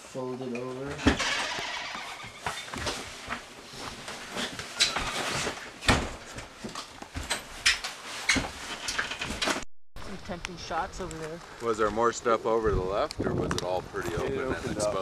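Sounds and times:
clothing rustling: 1.6 - 9.6.

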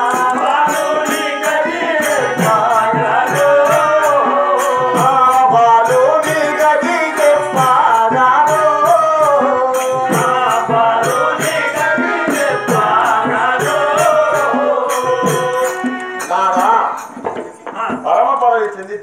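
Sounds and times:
person singing: 0.0 - 17.2
hand drum: 0.0 - 18.1
jingling hand percussion: 0.0 - 19.0.

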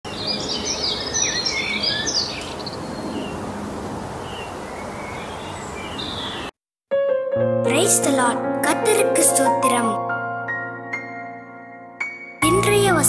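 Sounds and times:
birds chirping: 0.0 - 6.5
steady outdoor hiss: 0.1 - 6.5.

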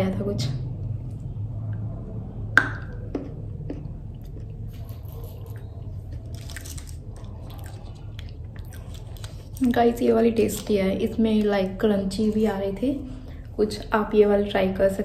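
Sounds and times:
low steady hum: 0.0 - 15.0
crackly chewing: 3.0 - 11.6.

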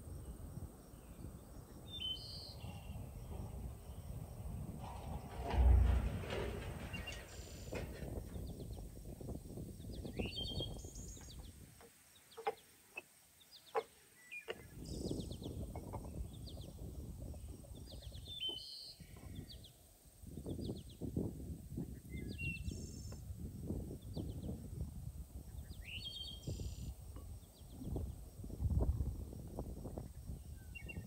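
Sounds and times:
low outdoor rumble: 2.6 - 11.5.

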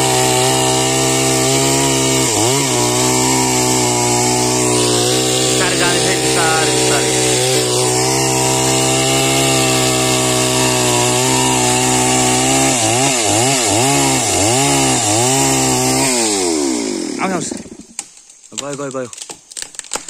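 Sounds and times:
chainsaw cutting wood: 0.0 - 20.0.

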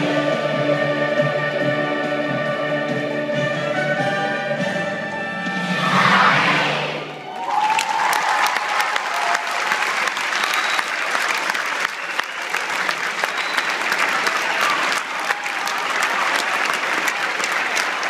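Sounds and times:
audience applauding: 7.2 - 18.0.

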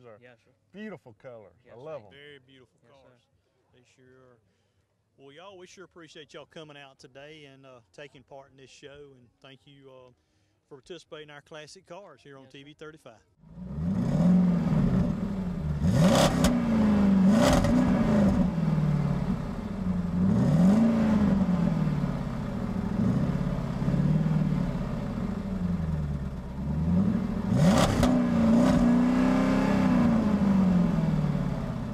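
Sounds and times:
cars accelerating: 13.5 - 31.9.

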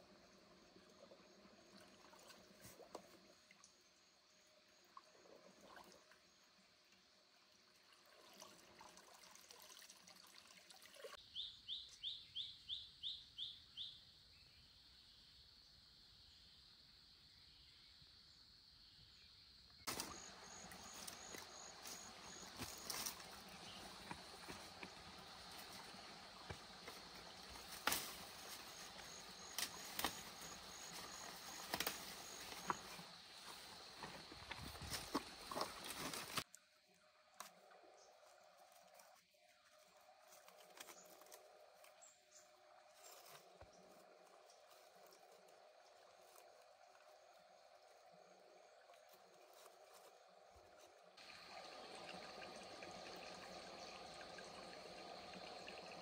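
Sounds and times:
insect chirping in pulses: 11.2 - 36.4, 39.1 - 56.0
faint leaf ticks: 19.9 - 34.3, 38.6 - 42.2
high insect drone: 19.9 - 36.4
footsteps through vegetation: 19.9 - 36.5
undergrowth rustling and snapping: 20.9 - 23.3, 27.5 - 30.6, 31.5 - 32.8.

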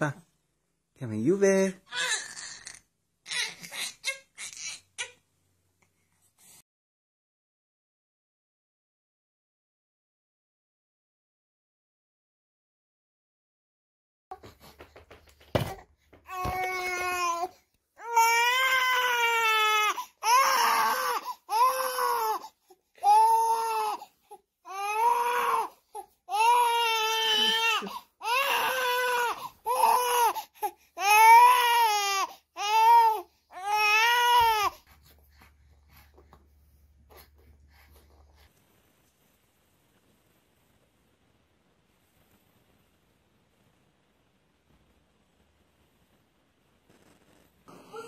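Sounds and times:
baby crying: 1.9 - 5.2, 16.3 - 34.8.

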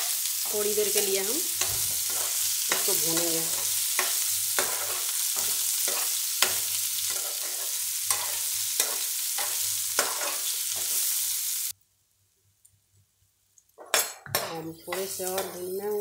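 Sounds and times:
food sizzling in oil: 0.0 - 11.8, 14.5 - 16.0
spatula scraping pan: 0.8 - 11.1
spatula tapping pan: 0.9 - 10.9.

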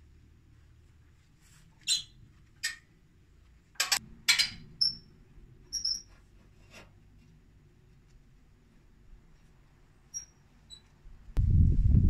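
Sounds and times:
metal clanks and knocks: 3.8 - 4.7.

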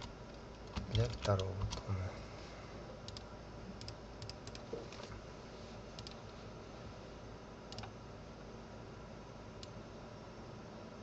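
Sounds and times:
faint steady hum: 0.0 - 11.0
computer mouse clicking: 3.1 - 5.1, 6.0 - 6.2, 7.7 - 7.9, 9.6 - 9.8.

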